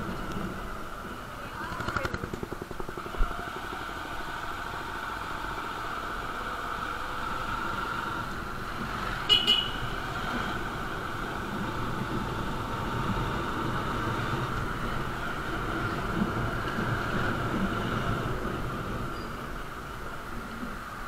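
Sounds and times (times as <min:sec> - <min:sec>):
motorcycle engine: 0:00.0 - 0:19.7
horn beeps: 0:09.3 - 0:09.8.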